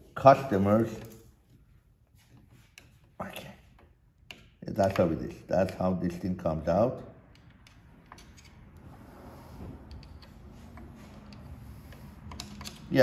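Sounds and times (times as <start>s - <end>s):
screwdriver clicking and scraping metal: 9.8s - 13.0s.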